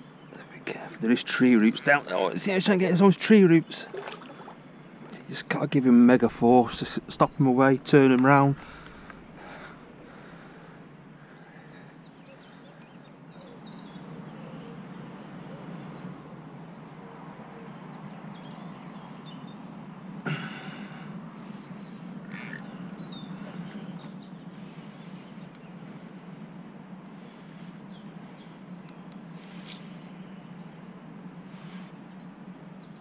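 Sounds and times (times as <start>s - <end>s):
high bird trill: 0.0s - 3.0s, 22.0s - 25.5s
low steady rumble: 0.0s - 17.0s, 17.8s - 33.0s
faint bird calls: 3.6s - 5.6s, 6.2s - 33.0s.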